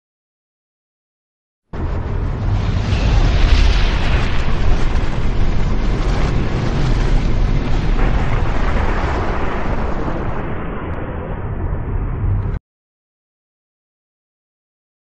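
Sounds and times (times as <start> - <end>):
deep rumble: 1.7 - 12.6
explosion roar: 1.8 - 12.6.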